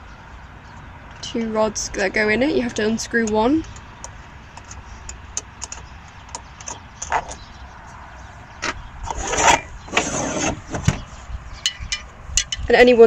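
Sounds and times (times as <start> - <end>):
metal rod scraping: 9.0 - 11.0.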